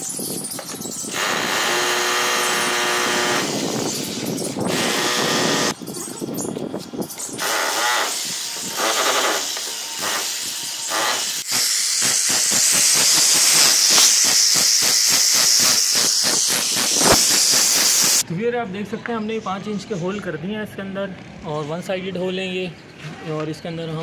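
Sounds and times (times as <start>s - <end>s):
hammer drill boring into concrete: 1.1s - 5.8s, 7.4s - 18.2s.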